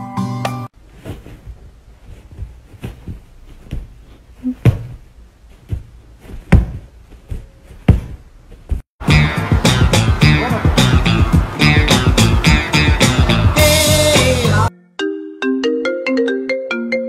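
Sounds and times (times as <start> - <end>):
soft thumps and knocks: 0.8 - 8.9
background music: 9.0 - 17.0.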